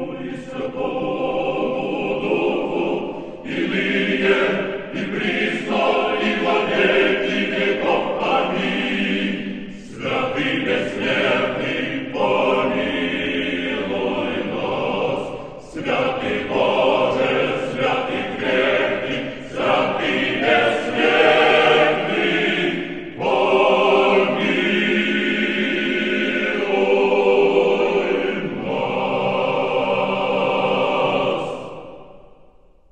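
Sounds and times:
choir singing a slow chant: 0:00.0 - 0:32.9.

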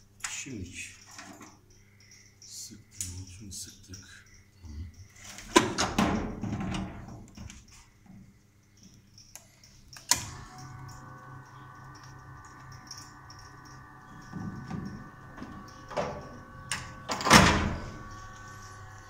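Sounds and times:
blower fan whining: 0:10.0 - 0:19.0.

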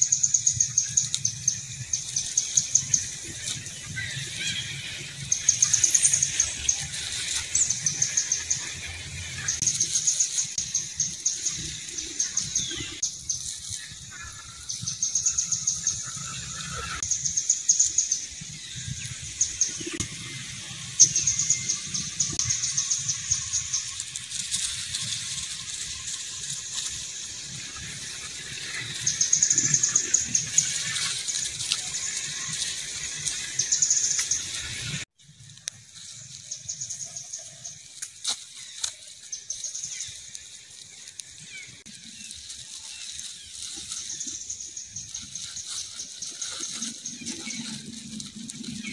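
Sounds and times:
bird singing rapid trills: 0:00.0 - 0:24.2.

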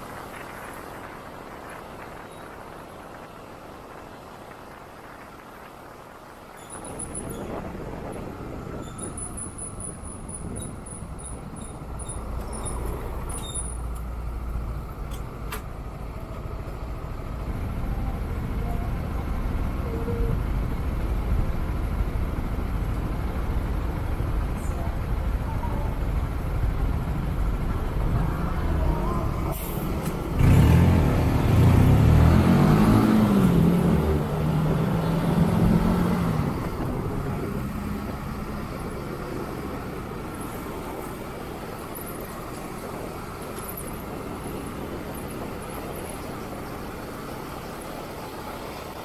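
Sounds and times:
motorcycle engines revving: 0:30.0 - 0:38.9.

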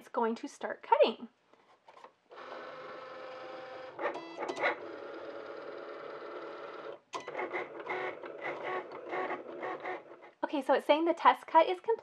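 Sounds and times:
cutting machine motors whining: 0:02.4 - 0:10.3.

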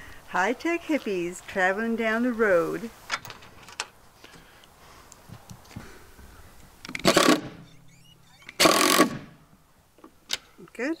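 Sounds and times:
impact driver running: 0:06.9 - 0:07.7, 0:08.5 - 0:09.3.

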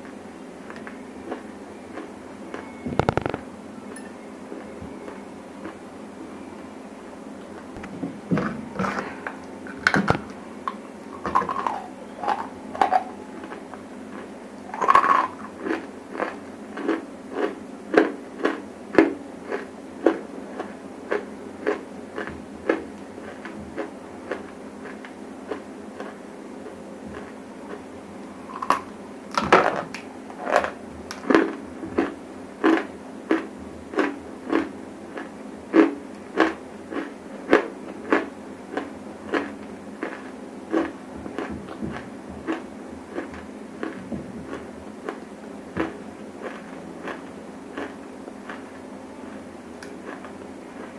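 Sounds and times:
crunchy chewing: 0:00.6 - 0:03.4, 0:04.6 - 0:05.9, 0:08.7 - 0:29.0, 0:29.6 - 0:50.9.

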